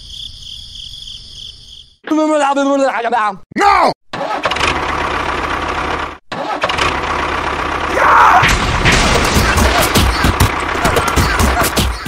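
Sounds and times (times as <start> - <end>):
tractor engine running rough: 4.2 - 8.0, 8.6 - 12.0
rapid engine knocking: 9.2 - 12.0.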